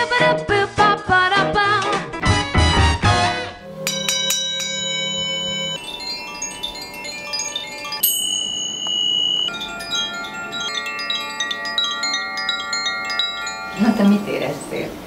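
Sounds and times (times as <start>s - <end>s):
bamboo tube chime tinkling: 3.6s - 14.4s
bright high bell strike: 3.6s - 14.5s
chimes ringing: 3.6s - 14.8s.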